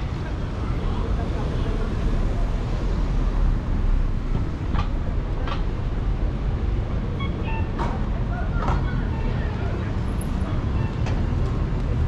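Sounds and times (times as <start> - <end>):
low street rumble: 0.0 - 12.0.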